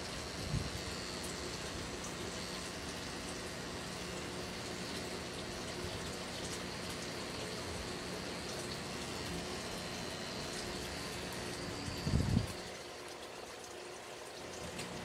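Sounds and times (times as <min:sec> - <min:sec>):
tattoo machine buzzing: 0:00.0 - 0:01.4.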